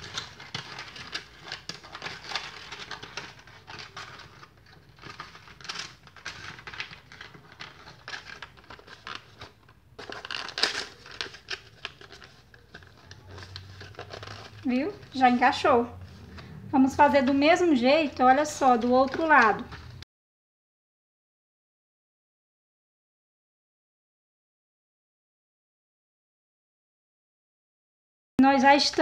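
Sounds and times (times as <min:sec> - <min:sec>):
cardstock rustling and crackling: 0:00.0 - 0:20.0.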